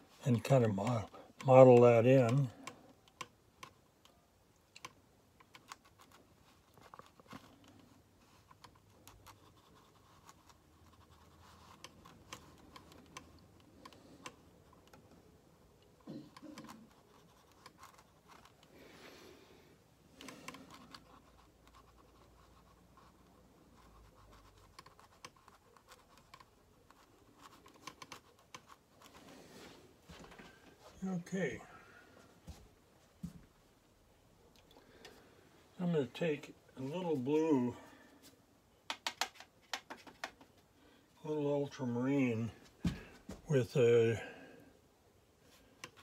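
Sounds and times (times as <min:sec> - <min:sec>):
brush scratching on paper: 0:08.2 - 0:12.9, 0:20.6 - 0:29.7.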